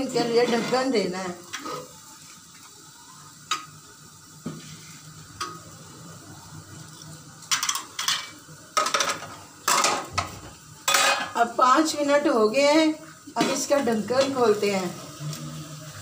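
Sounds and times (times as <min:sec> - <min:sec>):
metal pans and utensils clattering: 0:00.0 - 0:02.0, 0:07.4 - 0:12.3, 0:13.4 - 0:14.6
faint sizzle under a lid: 0:00.0 - 0:16.0.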